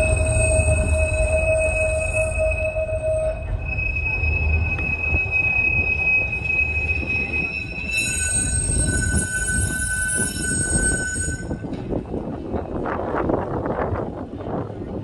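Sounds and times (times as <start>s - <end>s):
low running rumble: 0.0s - 9.8s
tram wheels squealing on rails: 0.0s - 13.2s.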